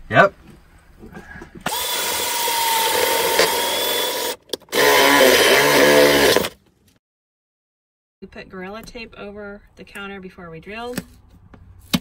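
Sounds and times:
cordless drill whining: 1.7s - 6.6s.

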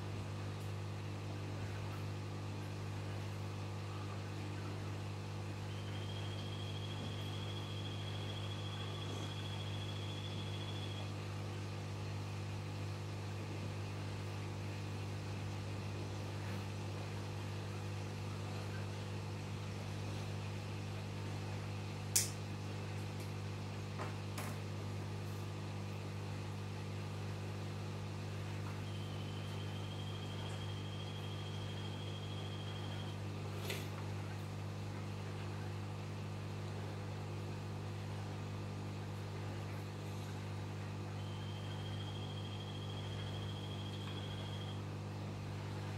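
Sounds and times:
aquarium equipment humming: 0.0s - 45.9s
sharp click: 22.1s - 22.4s.

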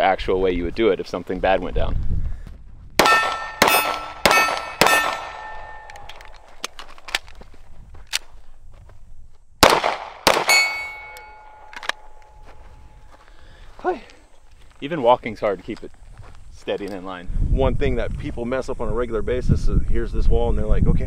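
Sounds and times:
steel target ringing: 3.0s - 6.5s, 10.3s - 13.1s
pistol shots: 3.0s - 6.8s, 9.6s - 12.1s.

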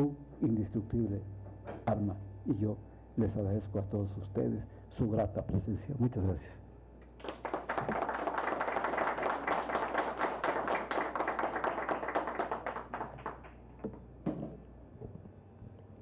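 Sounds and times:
audience applauding: 7.2s - 13.6s.

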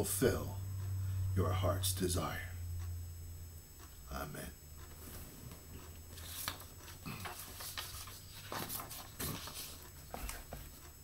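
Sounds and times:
steady low hum: 0.0s - 11.0s
paper rustling: 6.1s - 10.8s.

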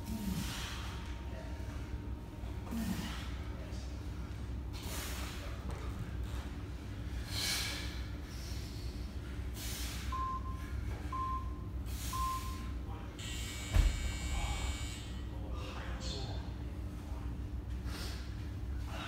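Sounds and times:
man breathing hard with effort: 0.0s - 2.0s, 6.2s - 11.1s, 11.8s - 12.7s, 17.7s - 19.0s
low room hum: 0.0s - 19.0s
short electronic beeps: 11.2s - 12.7s.

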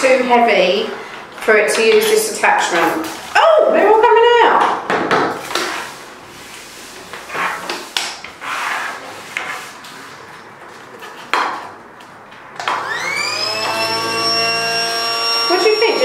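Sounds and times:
small vacuum motor whining: 12.6s - 16.0s.

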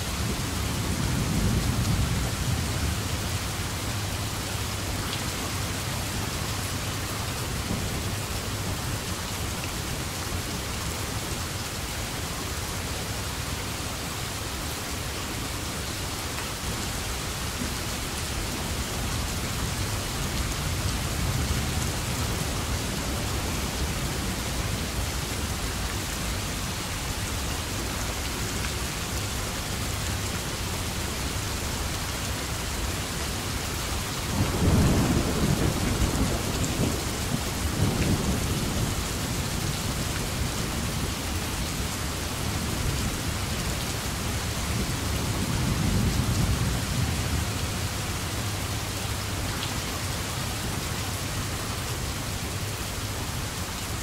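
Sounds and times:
steady rain: 0.0s - 54.0s.

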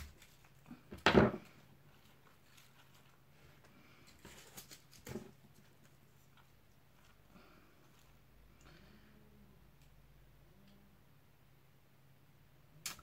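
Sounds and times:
soft clicks and rustles: 1.4s - 8.8s.

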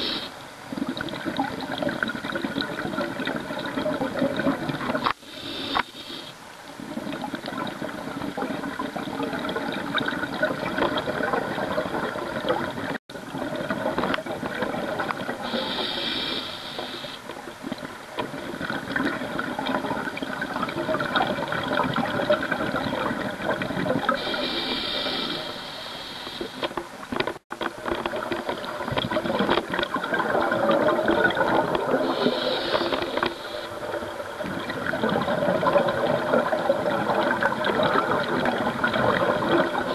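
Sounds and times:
regulator inhalation hiss: 0.0s - 0.4s, 5.0s - 6.4s, 15.4s - 17.2s, 24.2s - 26.7s, 32.0s - 33.9s
exhaled air bubbling underwater: 0.0s - 39.9s.

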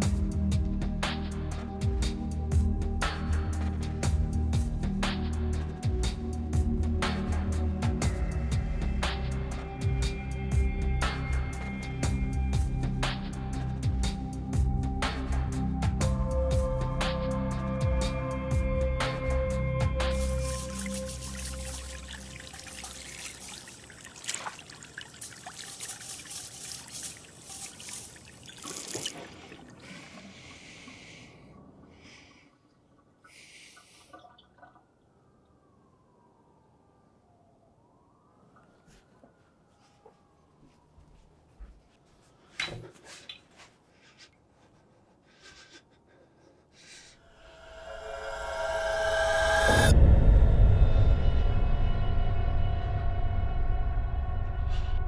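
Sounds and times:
eerie horror film music: 0.0s - 23.4s, 47.2s - 55.0s
faucet water splashing into sink: 20.2s - 29.7s
small movement sounds: 20.2s - 30.3s, 38.6s - 45.8s
man breathing softly: 29.2s - 34.2s, 42.3s - 47.2s.

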